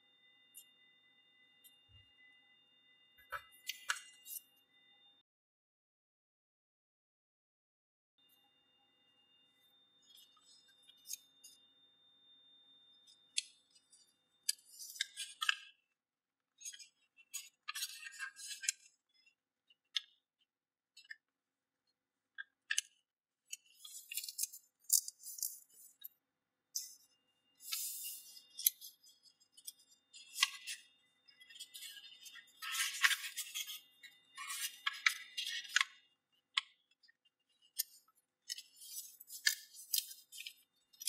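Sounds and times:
paper rustling and crinkling: 23.6 - 25.9, 31.4 - 33.8, 34.4 - 35.8.

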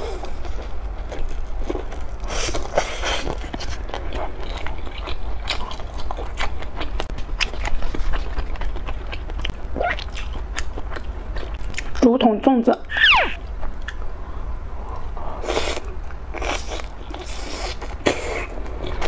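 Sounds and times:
chewing: 0.0 - 12.1
steady low hum: 0.0 - 19.0.

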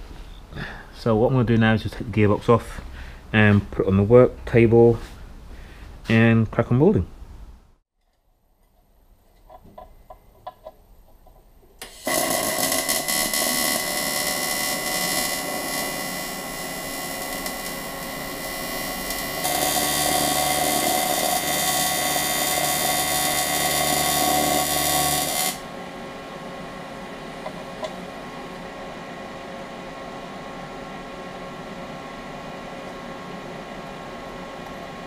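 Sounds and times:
welding arc buzzing hiss: 11.8 - 28.8
steady hum: 11.8 - 35.0.

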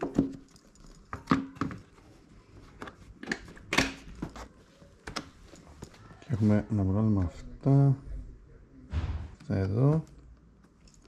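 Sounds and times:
hard objects knocking and clicking: 0.0 - 2.0.

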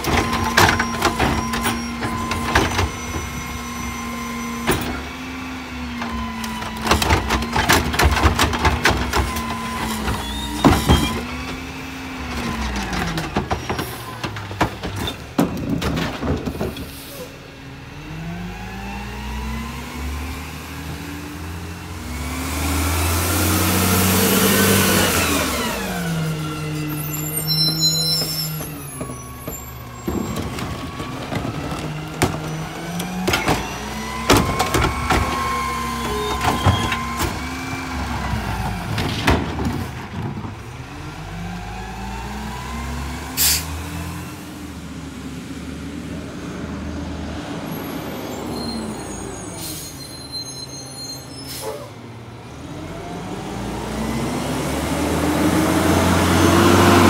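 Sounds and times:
carts banging against hopper: 0.0 - 3.6, 6.0 - 16.9, 27.0 - 40.6
garbage truck engine: 0.0 - 57.0.

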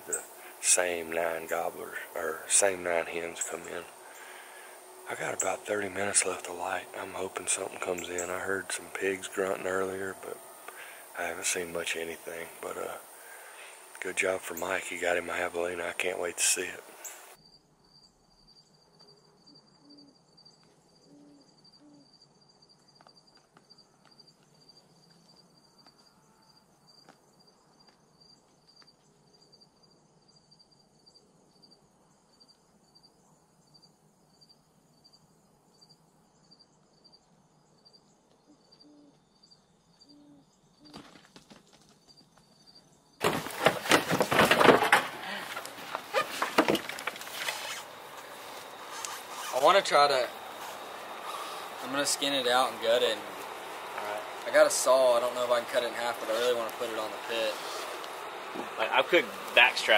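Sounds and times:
faint insect chirping: 0.0 - 59.9
rustling handling noise: 43.2 - 52.2.

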